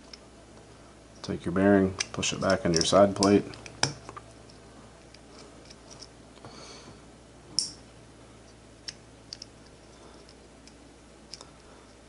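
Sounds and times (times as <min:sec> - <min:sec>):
small bearing clicks and taps: 0:02.0 - 0:06.1, 0:08.8 - 0:11.5.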